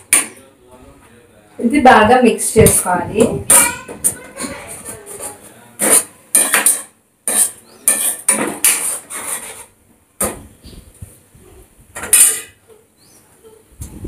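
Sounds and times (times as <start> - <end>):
spoon scraping frying pan: 2.6 - 9.8.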